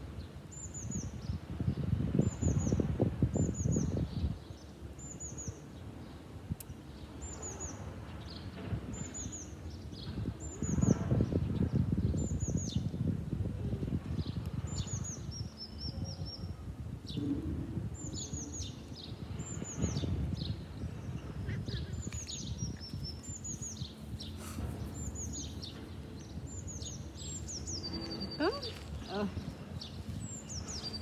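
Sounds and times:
small songbird singing: 14.2 - 17.2, 18.0 - 31.0
low rumbling noise: 16.5 - 31.0.

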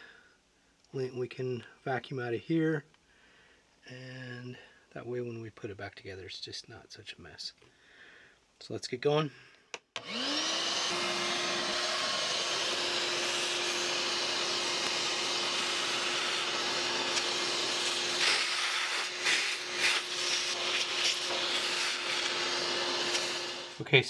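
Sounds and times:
vacuum cleaner whine: 10.0 - 24.0.

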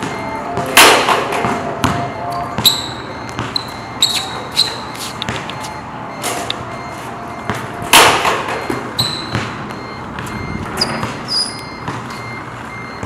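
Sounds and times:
ball striking hoop: 0.0 - 4.2, 5.2 - 5.8, 7.4 - 12.2
sneaker squeaks on court: 0.0 - 5.8, 8.5 - 12.4.

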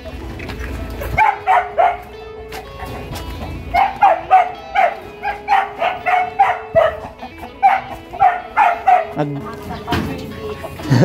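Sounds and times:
music with long held notes: 0.0 - 11.0
dog barking: 1.0 - 9.4.

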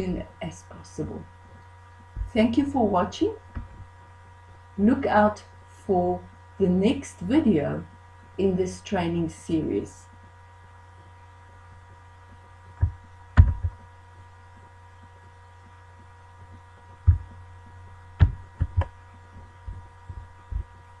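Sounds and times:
electrical hum: 0.0 - 21.0
low thumps and clicks: 2.2 - 2.4, 3.5 - 3.9, 12.8 - 13.8, 16.5 - 20.9.

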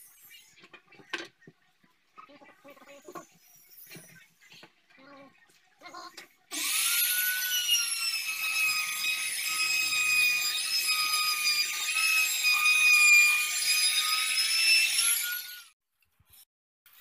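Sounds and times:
router whining and cutting: 6.5 - 15.7.

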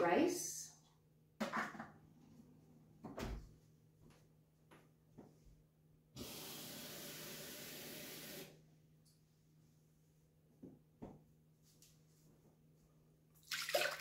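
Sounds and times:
tap water running: 6.2 - 8.5, 13.4 - 14.0.

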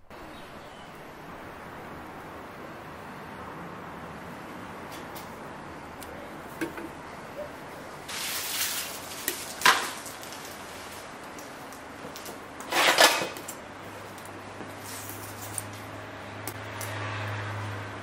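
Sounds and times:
metal scraping clatter: 12.7 - 13.6.

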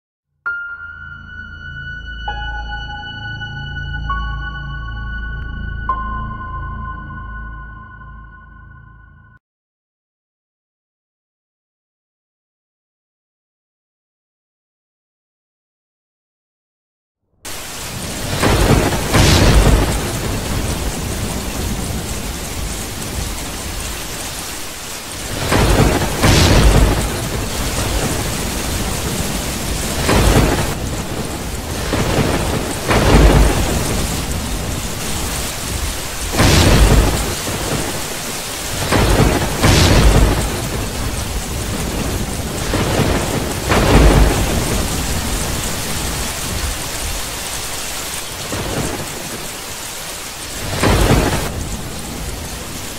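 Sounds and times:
steady rain: 17.5 - 52.9
thunder cracking and rumbling: 17.5 - 52.9.

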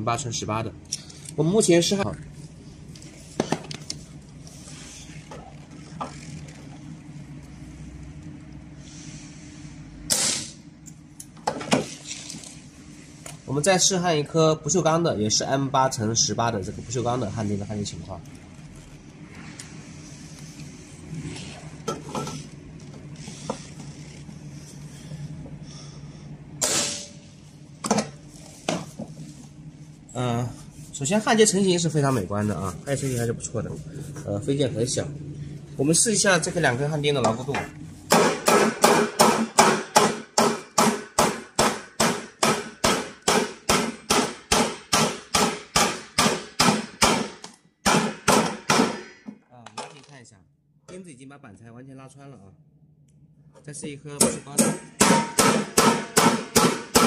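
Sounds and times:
steady low hum: 0.0 - 49.5, 50.2 - 57.0
hammer striking steel studs: 38.1 - 49.3, 54.2 - 57.0
sharp metallic knock: 54.2 - 57.0.

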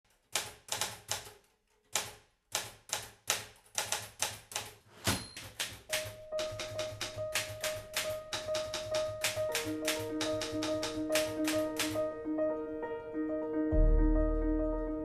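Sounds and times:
manual typewriter typing: 0.1 - 12.0.

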